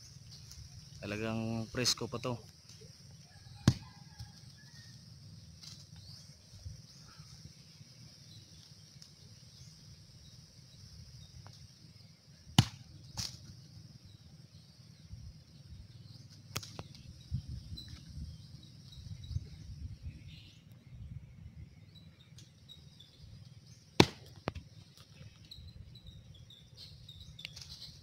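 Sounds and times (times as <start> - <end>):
coconuts thudding on ground: 3.6 - 3.9, 12.6 - 13.5, 24.0 - 24.6.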